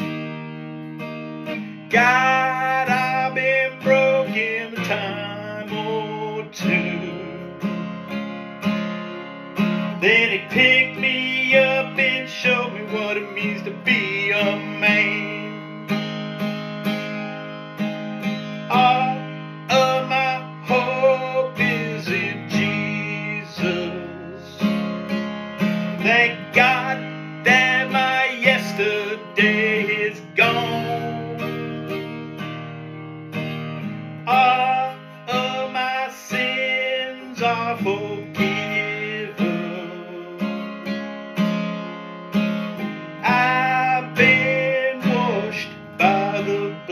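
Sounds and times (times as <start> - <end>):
acoustic guitar strumming: 0.0 - 46.9
man singing: 1.6 - 7.8, 9.8 - 16.1, 18.4 - 25.0, 25.6 - 32.0, 34.2 - 41.0, 42.8 - 46.9.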